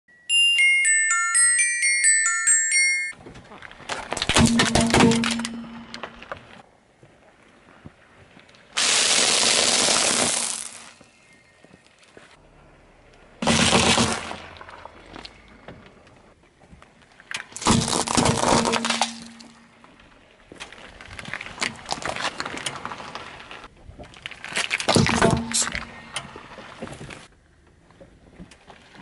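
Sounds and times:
plastic tube of beads breaking: 17.5s - 19.6s.

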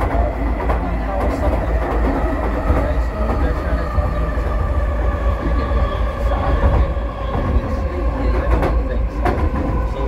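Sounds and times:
train car low rumble: 0.0s - 10.0s.

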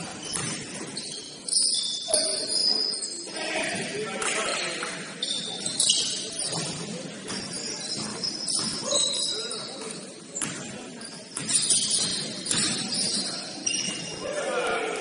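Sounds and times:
shoes squeaking on hardwood: 5.2s - 14.1s.

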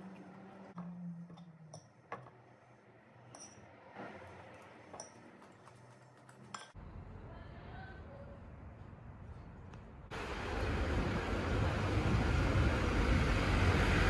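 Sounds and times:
spoon clinking on ceramic bowl: 3.3s - 3.6s, 4.9s - 5.2s, 6.5s - 6.8s.

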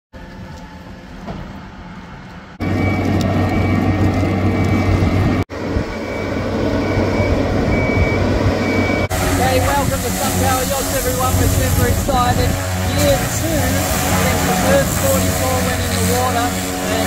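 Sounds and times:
low engine drone: 0.2s - 17.0s
high warning beeps: 5.9s - 9.6s.

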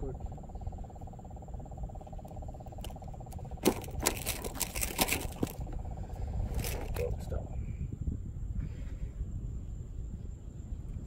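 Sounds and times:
faint pulsing trill: 0.0s - 4.8s
sharp clicks and rattles: 2.2s - 5.8s.

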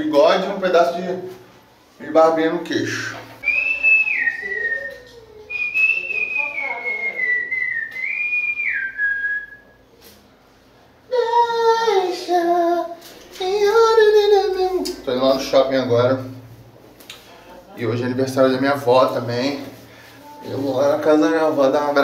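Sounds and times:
person whistling a tune: 3.4s - 9.8s
person singing: 11.1s - 15.0s.

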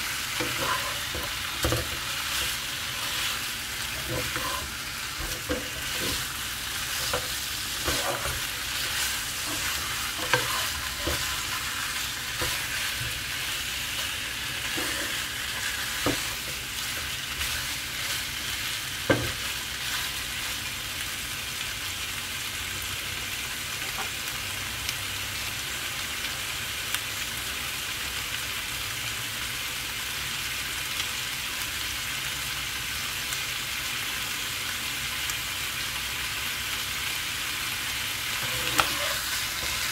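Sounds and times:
chicken sizzling in a pan: 0.0s - 39.9s
utensil scraping and knocking pan: 0.4s - 18.3s, 38.4s - 39.9s.

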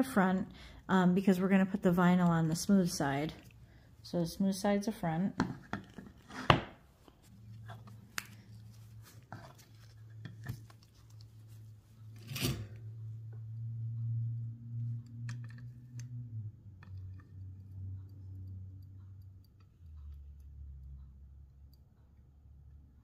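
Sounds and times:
low hum: 7.0s - 23.0s.

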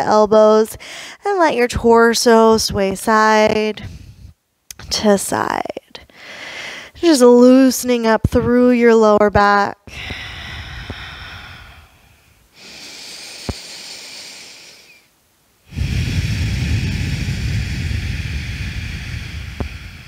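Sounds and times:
woman breathing slowly: 0.8s - 1.2s, 3.8s - 4.4s, 6.1s - 7.0s, 9.9s - 20.0s.

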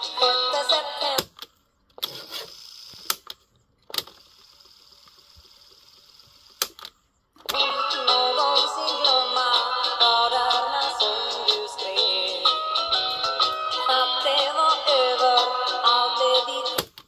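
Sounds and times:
music from tape: 0.0s - 1.4s, 7.5s - 17.0s
tape mechanism whirring: 2.0s - 7.5s.

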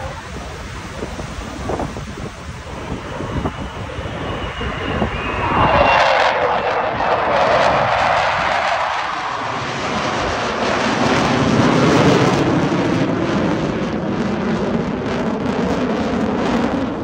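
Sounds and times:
fighter jets flying over: 0.0s - 17.0s.

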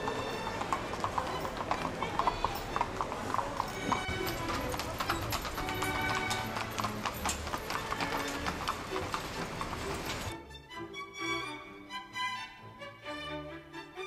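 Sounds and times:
horse hooves clip-clopping on street: 0.0s - 10.4s
music playing: 0.0s - 14.0s.

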